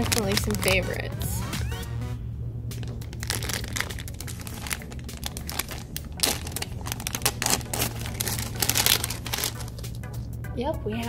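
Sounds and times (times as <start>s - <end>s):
plastic packaging crinkling: 0.0s - 1.1s, 2.8s - 10.0s.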